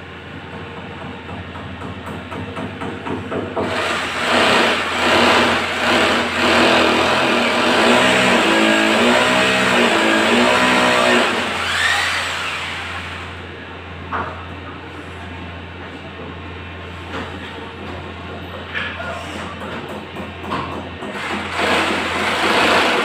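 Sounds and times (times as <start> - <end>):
electric power drill running: 3.6 - 13.4, 21.2 - 23.0.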